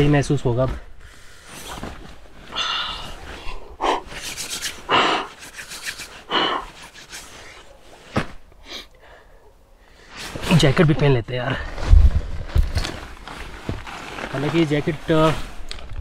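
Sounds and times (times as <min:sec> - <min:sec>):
man blowing into cupped hands: 0:02.5 - 0:07.7.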